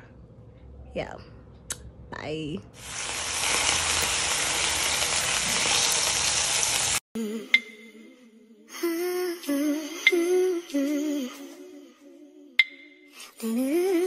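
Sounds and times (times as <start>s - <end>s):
sausages sizzling in frying pan: 2.8s - 7.0s
person humming a melody: 7.2s - 14.0s.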